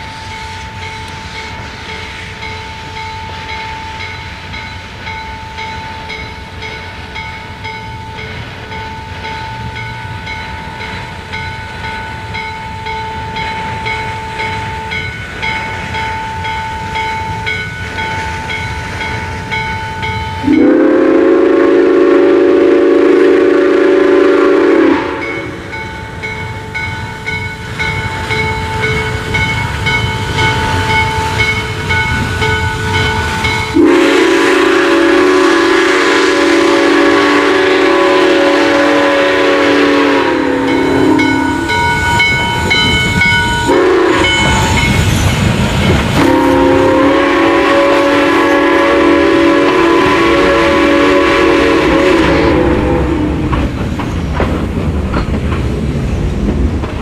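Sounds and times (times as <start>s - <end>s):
locomotive bell ringing: 0.0s - 22.5s, 24.0s - 54.4s
hissing steam: 0.0s - 57.0s
train rumbling: 0.0s - 57.0s
steam whistle blasts: 20.3s - 25.8s, 32.7s - 45.0s, 46.1s - 53.5s.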